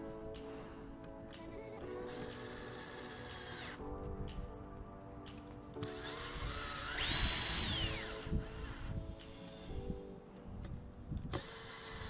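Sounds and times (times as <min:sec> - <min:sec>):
background music: 0:00.0 - 0:12.0
router motor whine spinning up: 0:01.6 - 0:03.8, 0:05.8 - 0:09.7, 0:11.3 - 0:12.0.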